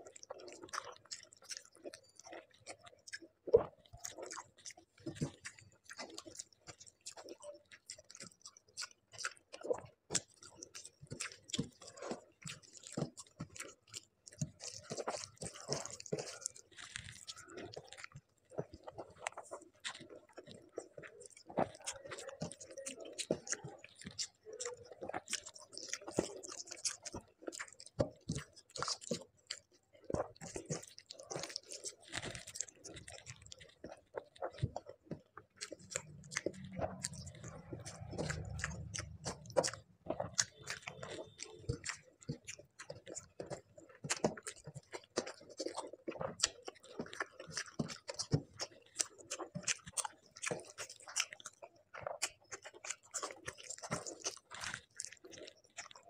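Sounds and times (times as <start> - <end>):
close chewing with mouth clicks: 0.0 - 56.0
fingers squelching through rice: 4.2 - 56.0.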